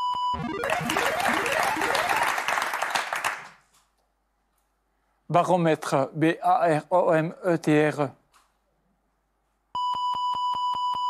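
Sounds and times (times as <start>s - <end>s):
clattering applause-like burst: 0.4s - 3.8s.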